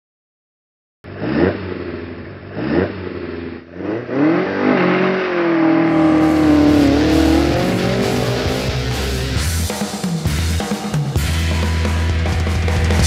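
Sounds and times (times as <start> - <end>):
car engine revving: 1.1 - 10.6.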